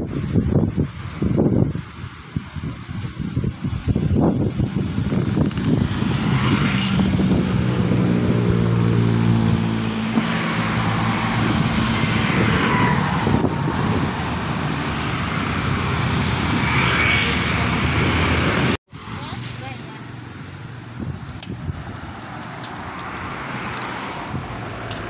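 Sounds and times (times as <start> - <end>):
engine humming: 2.7 - 18.8
motor scooters passing: 4.1 - 21.2
small truck passing: 4.2 - 18.8.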